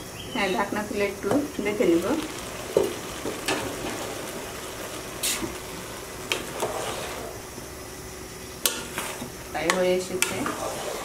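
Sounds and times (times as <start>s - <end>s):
rice sizzling in a pot: 0.4s - 11.0s.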